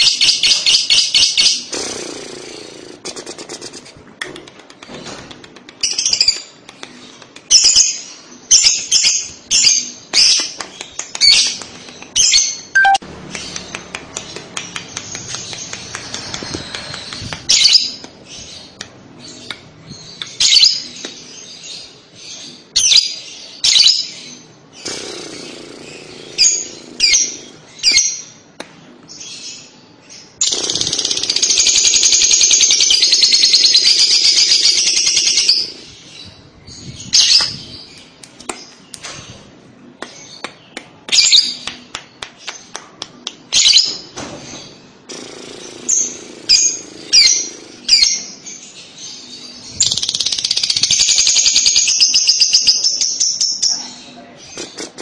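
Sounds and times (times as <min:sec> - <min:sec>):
lovebird high chirps: 0:12.2 - 0:13.0.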